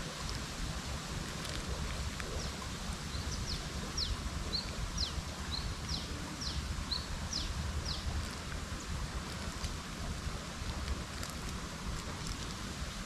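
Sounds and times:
songbird singing: 1.7s - 10.8s.

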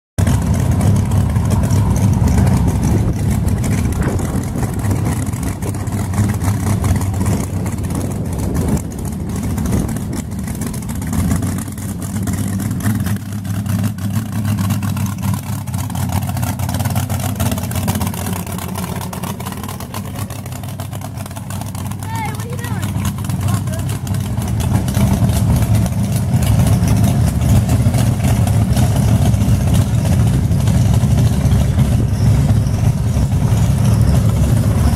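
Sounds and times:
loud truck engine running: 0.2s - 34.9s.

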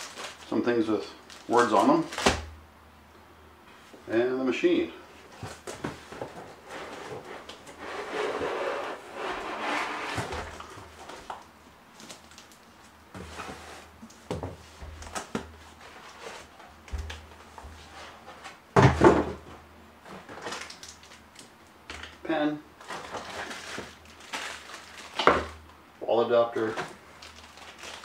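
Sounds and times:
packaging rustling: 0.0s - 2.4s, 5.2s - 14.2s, 20.2s - 22.1s, 22.8s - 25.6s, 26.7s - 28.0s
cardboard scraping: 5.2s - 11.3s, 13.1s - 14.0s.

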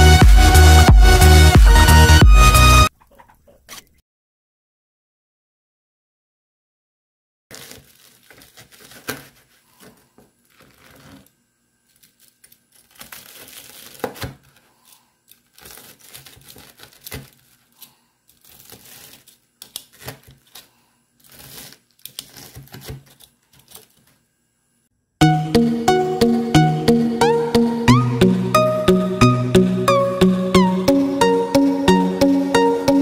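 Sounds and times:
crispy crust crunching: 7.5s - 11.3s, 11.9s - 24.1s.

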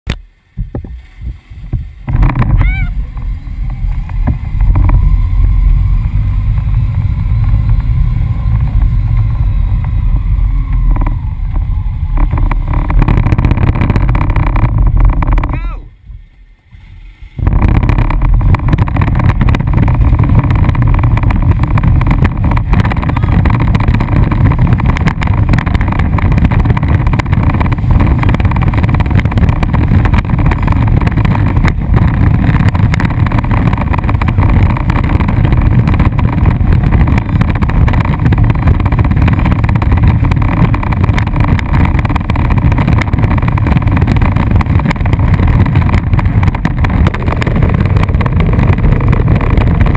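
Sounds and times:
plastic wheels rolling on asphalt: 0.1s - 49.9s
wind buffeting microphone: 0.1s - 49.9s.

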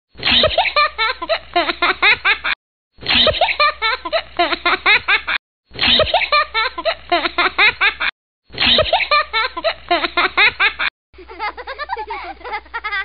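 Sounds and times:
high-pitched giggling laughter: 0.2s - 13.0s.

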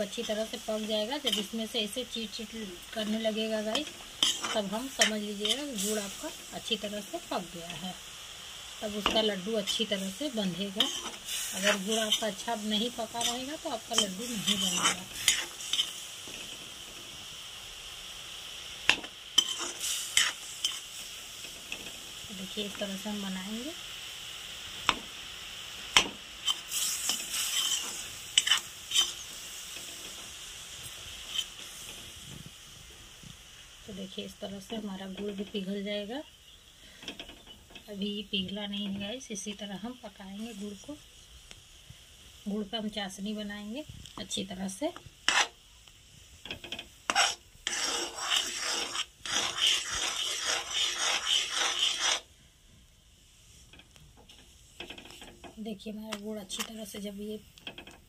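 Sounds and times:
metal spoon scraping a pan: 0.0s - 7.9s, 8.9s - 16.6s, 18.9s - 22.0s, 26.0s - 30.2s, 31.2s - 32.0s, 45.2s - 45.6s, 46.5s - 52.3s
sizzling in a metal pan: 0.0s - 58.0s.

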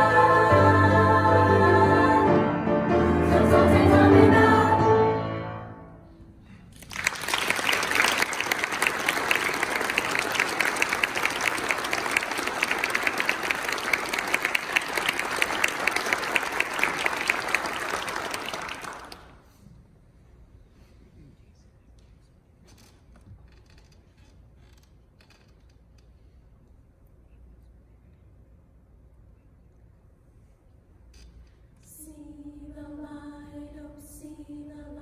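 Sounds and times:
girls' choir singing chord: 0.0s - 6.0s, 31.9s - 35.0s
audience applauding: 6.8s - 19.4s.

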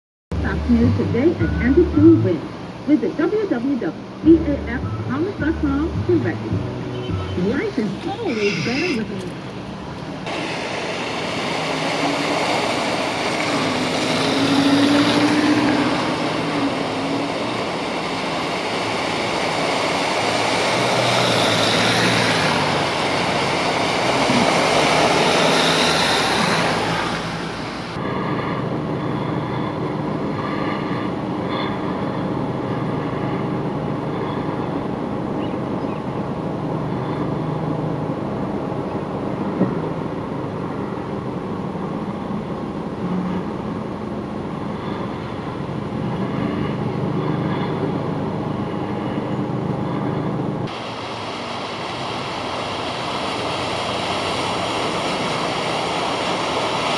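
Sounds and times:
tyres splashing through floodwater: 0.3s - 56.9s
vehicle engines running: 0.3s - 56.9s.

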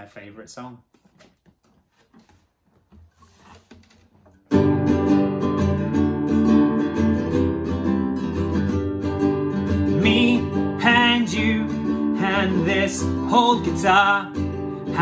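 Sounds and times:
acoustic guitar strumming chords: 4.5s - 15.0s.

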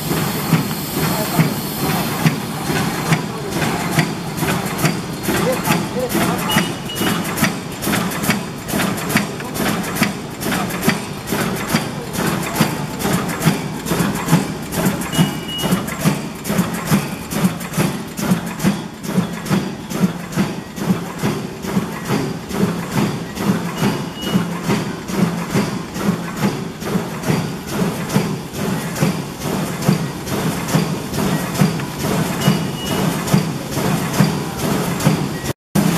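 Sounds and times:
machine clacking: 0.0s - 35.9s
short high beep: 6.5s - 7.2s, 15.1s - 15.8s, 23.8s - 24.5s, 32.4s - 33.1s.

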